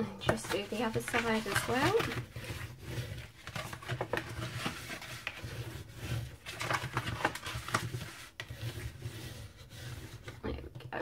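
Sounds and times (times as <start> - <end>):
cardstock crinkling and rustling: 0.2 - 10.4
low rubbing sound: 7.6 - 10.4.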